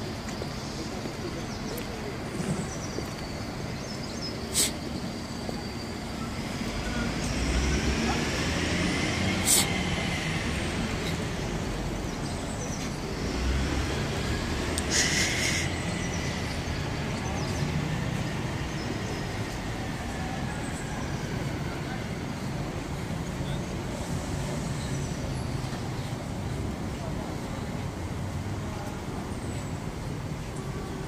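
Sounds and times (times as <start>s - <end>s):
hum of passing traffic: 0.0s - 31.0s
brief hiss: 4.5s - 4.8s, 9.4s - 9.8s, 14.8s - 15.8s.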